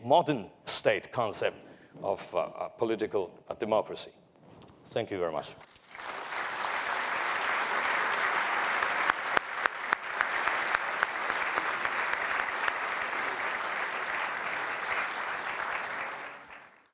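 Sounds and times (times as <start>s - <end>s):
audience applauding: 5.8s - 16.9s.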